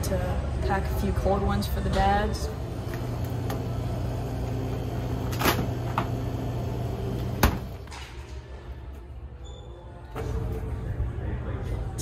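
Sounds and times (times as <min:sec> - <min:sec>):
drinks cooler humming: 0:02.4 - 0:07.9
cooler door shutting: 0:04.6 - 0:07.9.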